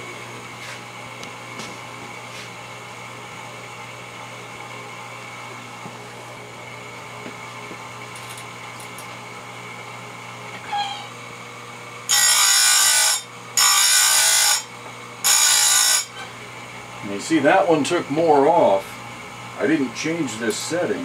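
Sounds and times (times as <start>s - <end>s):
grinder motor running: 11.3s - 21.0s
grinding wheel on saw chain: 12.1s - 16.2s.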